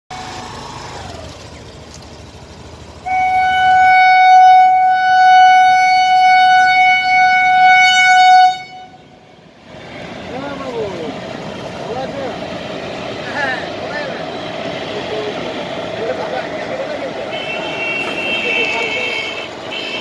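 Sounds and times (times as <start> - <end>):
locomotive horn blast: 3.0 - 9.2, 17.2 - 20.0.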